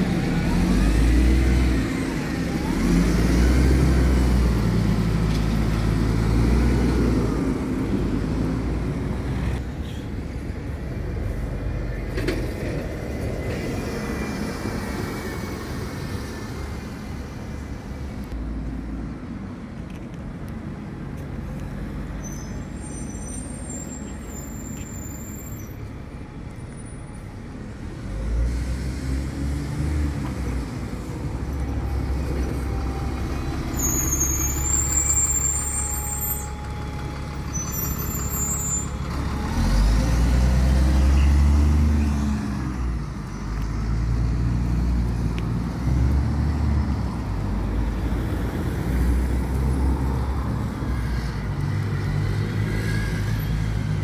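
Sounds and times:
diesel bus engines rumbling: 0.0s - 54.0s
short high-pitched squeals: 33.7s - 39.0s.

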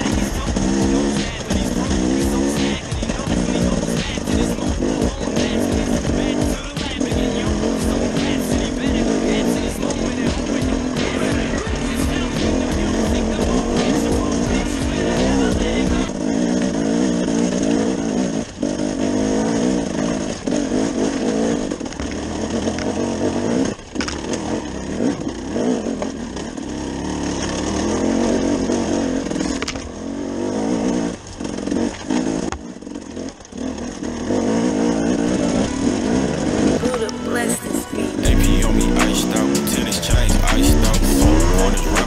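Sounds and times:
motorcycle engine under load: 0.0s - 42.0s.

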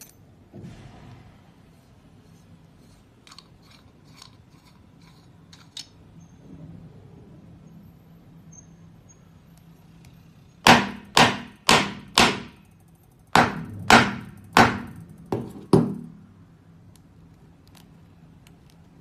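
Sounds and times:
hard objects knocking: 13.4s - 16.2s.

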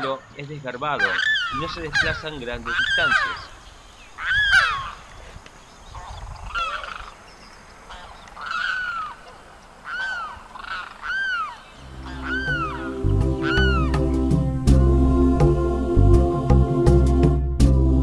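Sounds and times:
bird crying: 0.9s - 5.2s, 7.9s - 14.1s.

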